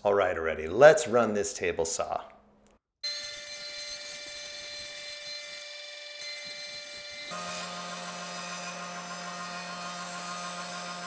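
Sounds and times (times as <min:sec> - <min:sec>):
bit cutting through plywood: 0:03.0 - 0:11.0
router spindle whining: 0:03.0 - 0:11.0.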